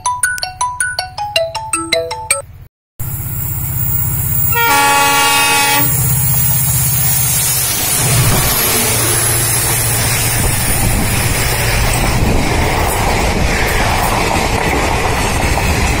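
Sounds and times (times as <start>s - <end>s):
marimba-like tune: 0.0s - 2.5s
diesel locomotive rumble: 3.0s - 16.0s
locomotive horn blast: 4.5s - 6.1s.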